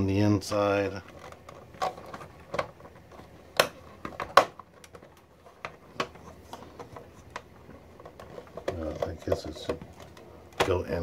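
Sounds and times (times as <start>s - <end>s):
sharp plastic snaps: 3.5s - 5.2s.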